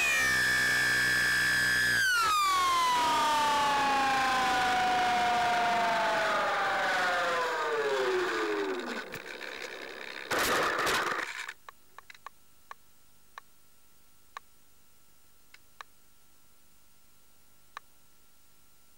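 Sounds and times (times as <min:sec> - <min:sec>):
electric motor whining down: 0:00.0 - 0:11.3.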